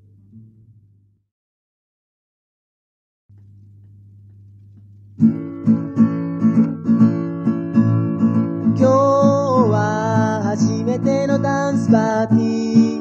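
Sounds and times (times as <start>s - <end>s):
low steady hum: 0.0s - 1.3s, 3.3s - 5.4s
acoustic guitar strumming: 5.2s - 13.0s.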